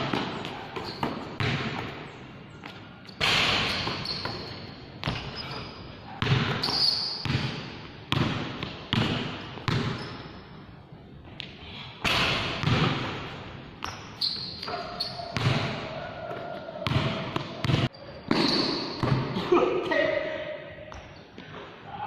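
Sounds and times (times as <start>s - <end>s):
basketball bouncing on court: 0.0s - 2.0s, 3.2s - 10.4s, 12.0s - 19.5s
sneakers squeaking on court: 0.0s - 10.6s, 12.6s - 19.4s, 20.9s - 21.5s.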